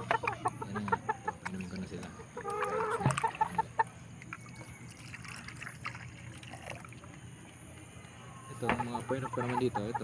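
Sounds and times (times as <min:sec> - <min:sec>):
water trickling into cup: 0:00.0 - 0:07.4
rooster clucking: 0:02.0 - 0:04.0, 0:08.6 - 0:10.0.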